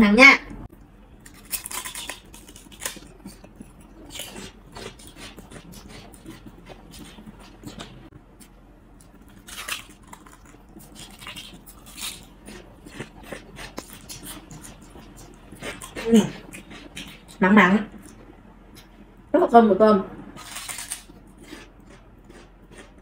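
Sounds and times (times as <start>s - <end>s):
crunchy bites of crackers: 1.2s - 3.5s, 9.2s - 13.2s, 20.4s - 21.2s.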